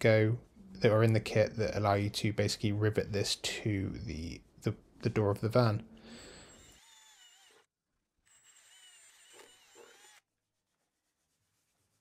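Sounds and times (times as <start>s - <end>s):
cordless drill whining: 6.2s - 7.7s, 8.3s - 10.2s.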